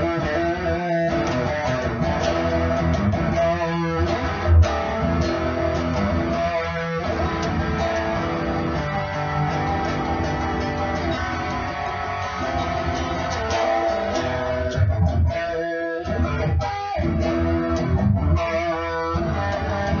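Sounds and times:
bass line: 0.0s - 15.3s
electric guitar riffs: 0.0s - 20.0s.

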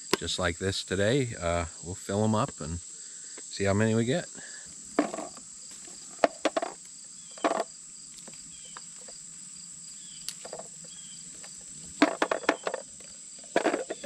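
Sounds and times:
high insect drone: 0.0s - 14.0s
leaves rustling: 4.5s - 14.0s.

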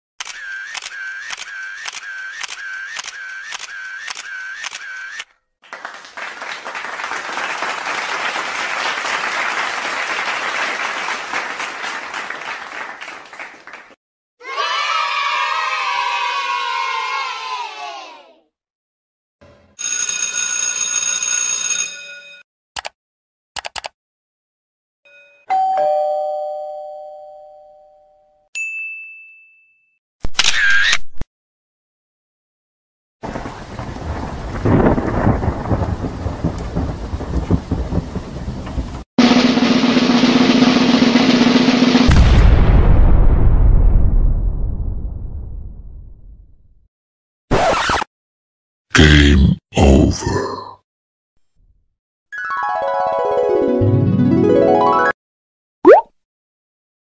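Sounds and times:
applause: 5.6s - 14.0s
ding-dong chime: 25.1s - 30.0s.

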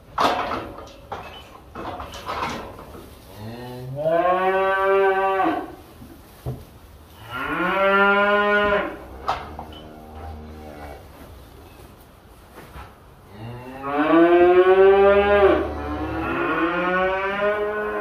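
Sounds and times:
cattle mooing: 7.3s - 11.0s, 13.4s - 18.0s.

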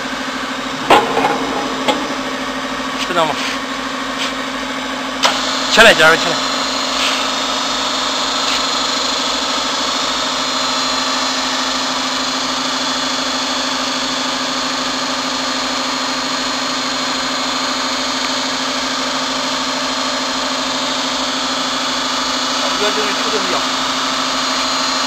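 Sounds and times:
hydraulic pump humming: 0.0s - 12.2s.

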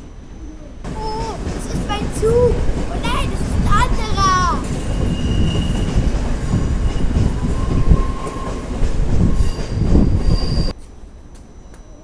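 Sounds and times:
train rumbling past: 0.0s - 12.0s
train wheel squeal: 4.6s - 12.0s.

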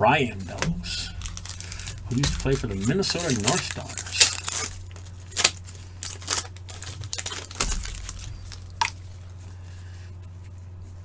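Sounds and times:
foil wrapper tearing and crinkling: 0.6s - 9.4s.

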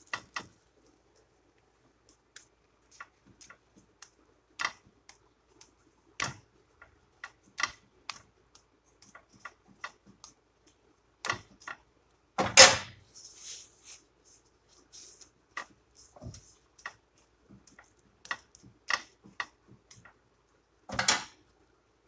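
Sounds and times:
fat crackling in pan: 0.0s - 13.0s.

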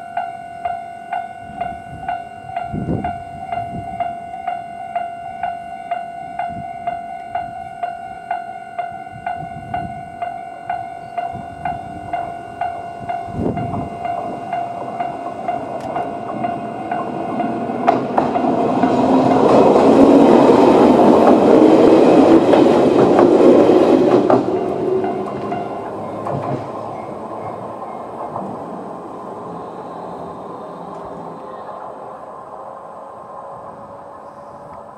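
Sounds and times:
railway crossing bell: 0.0s - 34.9s
train wheels clattering on rails: 8.3s - 31.9s.

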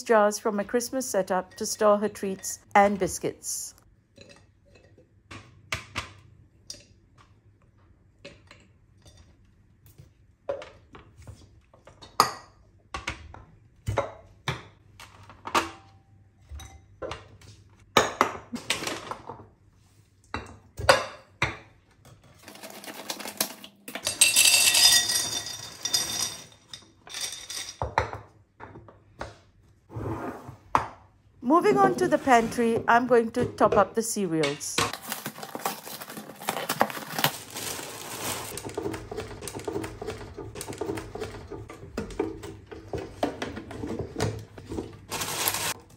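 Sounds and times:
treats clinking on glass jars: 23.9s - 27.8s.

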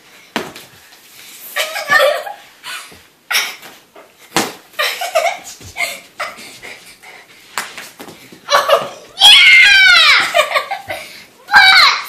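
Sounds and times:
children laughing: 1.6s - 3.6s, 4.8s - 6.8s, 8.5s - 11.1s.

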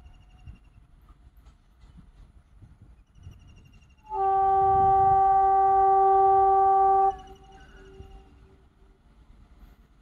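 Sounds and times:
train rumbling: 0.0s - 10.0s
locomotive horn blast: 4.0s - 8.2s.

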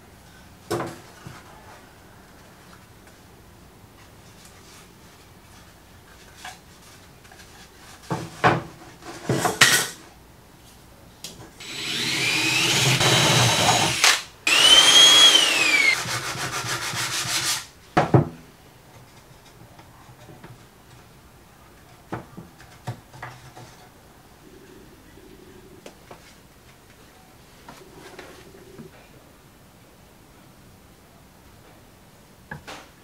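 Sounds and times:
drill boring into wood: 11.6s - 16.1s.

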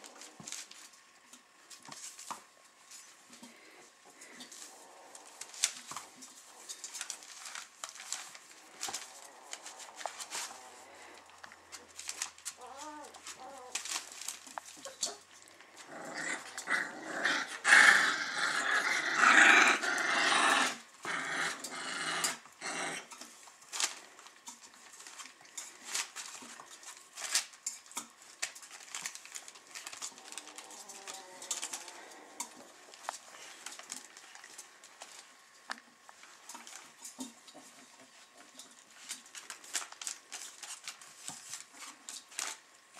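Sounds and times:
puppies growling and whimpering: 3.0s - 24.2s, 28.7s - 35.5s.

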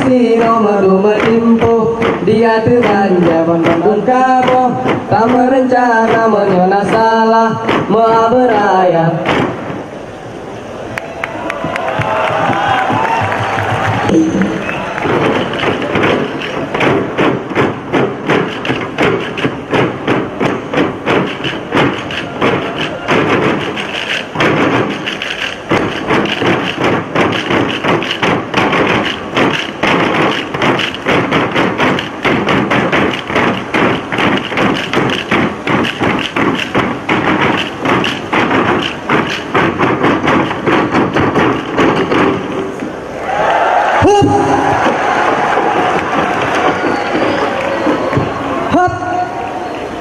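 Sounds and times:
group hand claps and body slaps: 10.9s - 42.6s, 44.7s - 48.4s.

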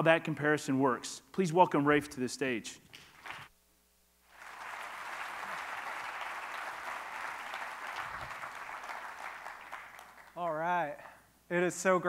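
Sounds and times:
audience applauding: 3.1s - 3.5s, 4.3s - 11.2s.

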